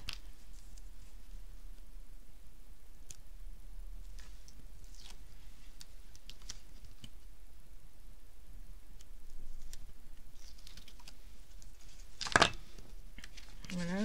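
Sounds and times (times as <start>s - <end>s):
acetate sheet crinkling: 0.0s - 1.9s, 4.0s - 7.3s, 9.0s - 14.0s.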